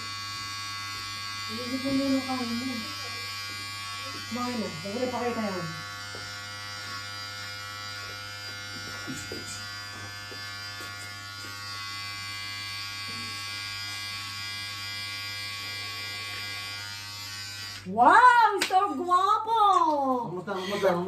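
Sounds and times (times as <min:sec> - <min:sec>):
electric hair clippers buzzing: 0:00.0 - 0:18.8.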